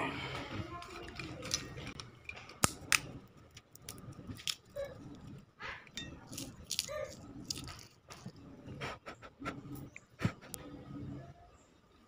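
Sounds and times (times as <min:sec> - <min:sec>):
peanut shells cracking: 0:00.8 - 0:05.0, 0:06.2 - 0:08.3.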